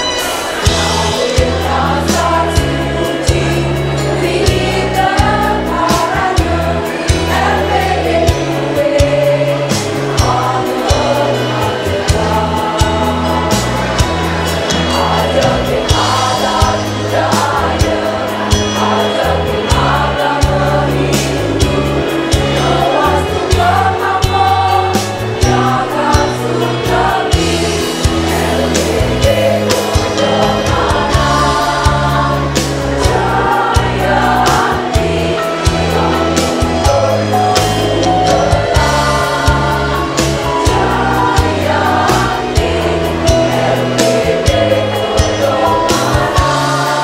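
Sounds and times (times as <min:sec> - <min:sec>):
bass line: 0:00.0 - 0:47.0
women's choir singing: 0:00.0 - 0:47.0
steady beat: 0:15.8 - 0:47.0.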